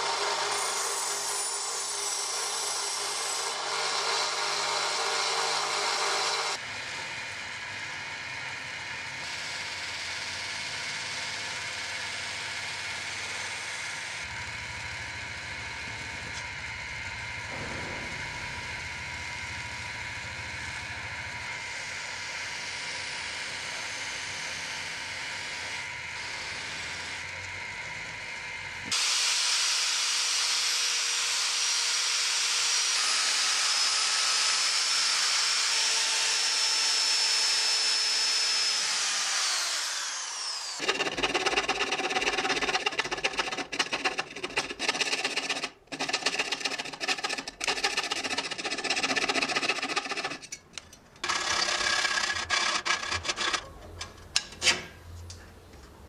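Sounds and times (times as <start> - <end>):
hand saw rasping through metal: 0.0 - 6.6, 31.9 - 54.0
drill press whining: 31.7 - 54.2
buffing wheel running: 40.0 - 53.8.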